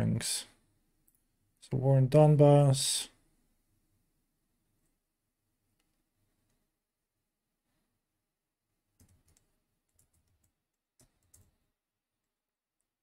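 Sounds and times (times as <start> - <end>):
computer keyboard and mouse clicks: 9.0 - 11.6.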